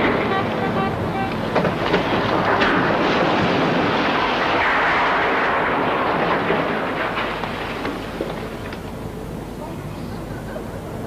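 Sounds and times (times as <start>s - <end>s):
explosive cracks: 1.3s - 9.0s
chimney crashing down: 1.5s - 8.7s.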